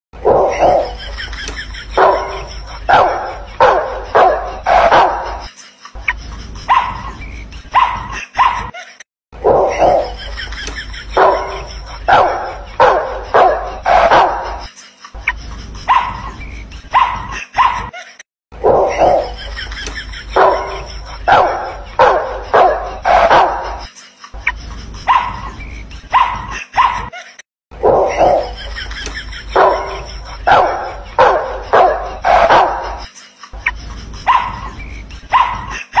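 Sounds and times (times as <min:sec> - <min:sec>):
small dog barking: 0:02.9 - 0:05.3, 0:07.8 - 0:08.7, 0:12.1 - 0:14.5, 0:17.0 - 0:17.9, 0:21.3 - 0:23.7, 0:26.2 - 0:27.1, 0:30.5 - 0:33.0, 0:35.3 - 0:36.0.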